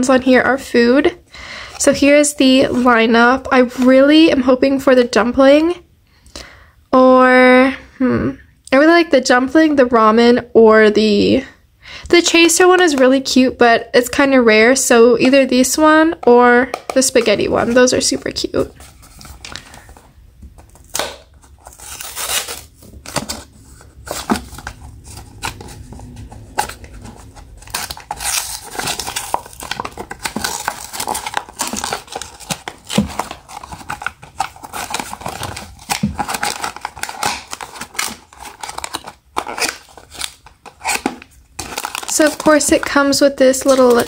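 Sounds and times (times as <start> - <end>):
paper rustling: 17.2 - 44.0
cardboard box tearing open: 20.7 - 42.6.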